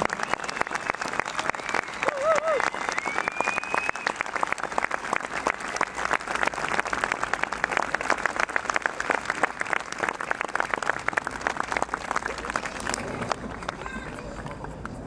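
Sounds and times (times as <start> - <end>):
crowd applauding: 0.0 - 15.0.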